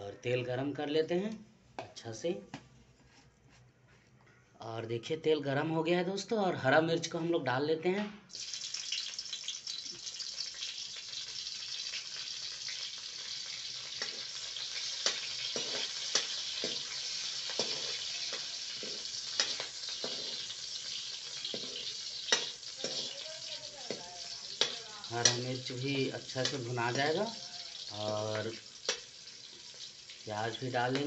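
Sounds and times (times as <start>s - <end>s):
chillies sizzling in hot oil: 8.3s - 31.0s
ladle scraping and knocking pan: 15.1s - 20.5s, 21.4s - 23.1s.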